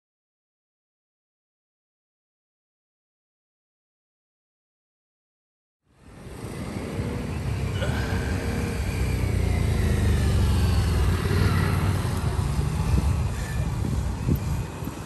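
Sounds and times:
motorcycle engines running: 5.9s - 15.0s.

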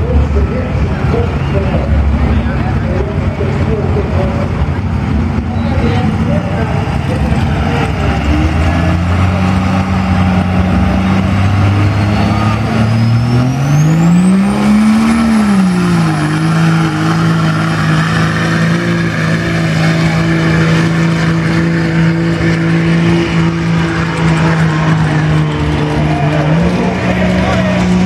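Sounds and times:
diesel truck engine under load: 0.0s - 28.0s.

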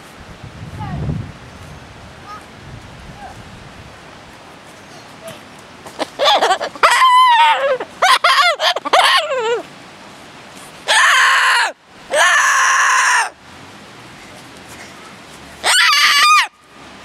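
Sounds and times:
cockatoo calling and screeching: 6.0s - 9.6s, 15.6s - 16.5s.

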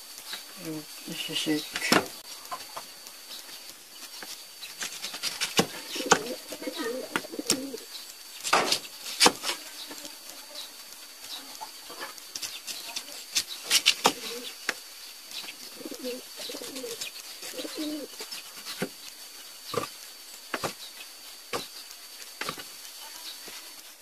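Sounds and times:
dove cooing: 5.3s - 7.9s, 13.7s - 14.6s, 15.5s - 18.2s.

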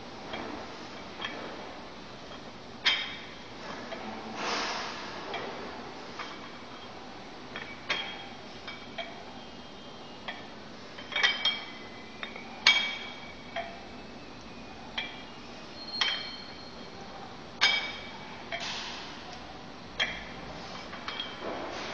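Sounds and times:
iron weights clinking: 2.2s - 4.3s, 4.9s - 9.3s, 10.2s - 13.8s, 15.0s - 16.6s, 17.6s - 19.1s, 19.9s - 21.7s.

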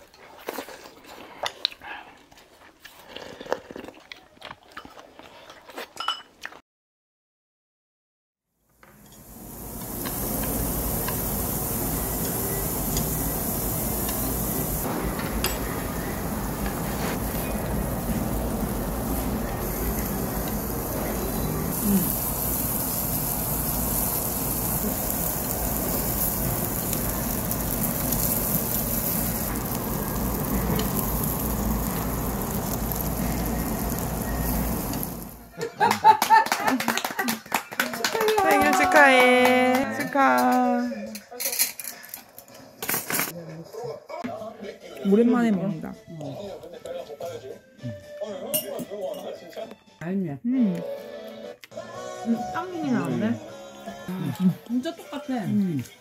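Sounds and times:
food sizzling in hot pan: 8.8s - 35.5s.

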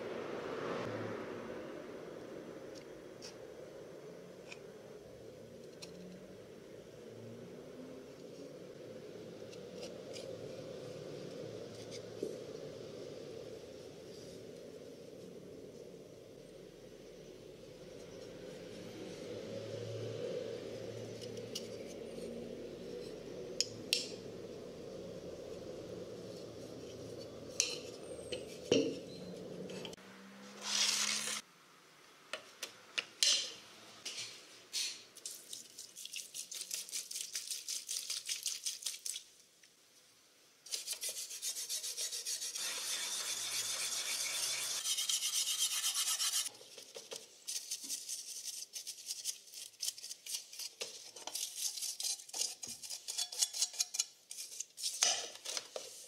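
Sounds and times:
wire brush scrubbing rusty steel: 40.7s - 46.5s, 47.4s - 55.0s.

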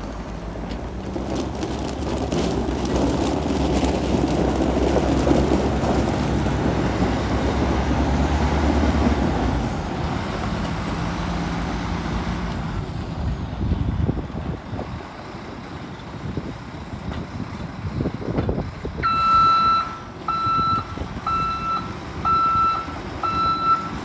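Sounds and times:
tyres crunching over gravel: 0.0s - 12.6s
diesel truck engine running: 0.0s - 24.0s.

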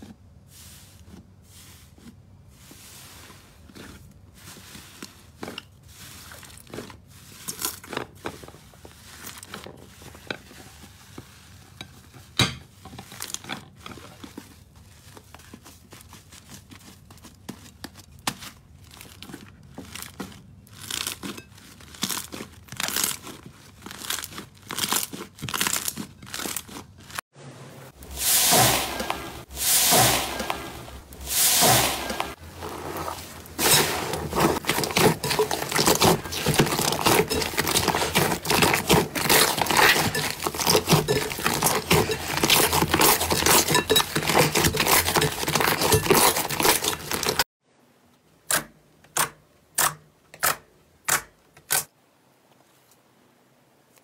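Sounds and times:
crunchy slime crunching: 1.0s - 10.2s, 13.0s - 27.2s, 31.0s - 47.5s
slime crackling and popping: 18.4s - 27.2s.

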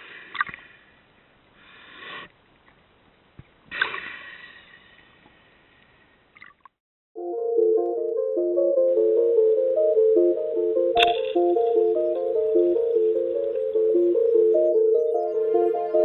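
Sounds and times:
music: 7.2s - 16.0s.

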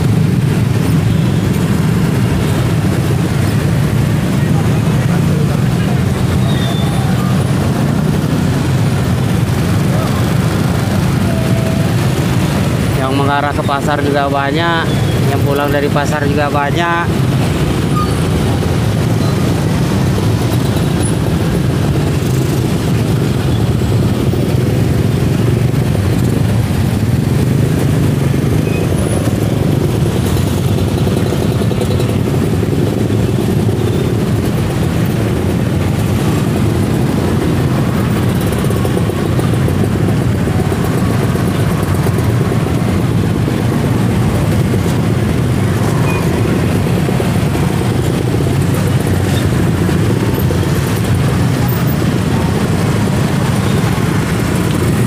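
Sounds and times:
din of traffic jam: 0.0s - 55.0s.

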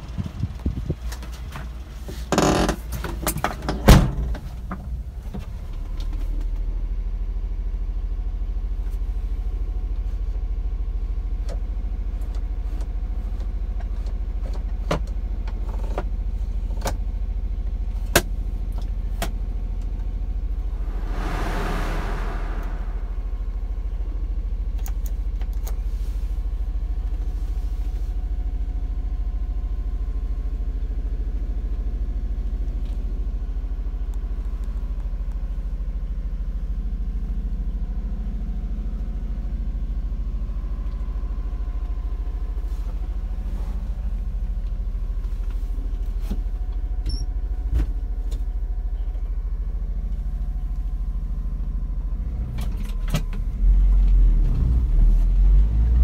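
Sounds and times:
brief rush of noise: 20.6s - 24.0s.

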